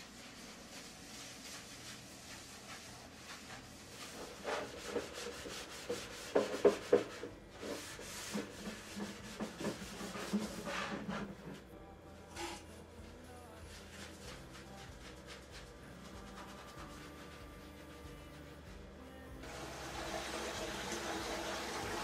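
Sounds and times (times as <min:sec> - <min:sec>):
scrubbing strokes: 0:00.0 - 0:11.6.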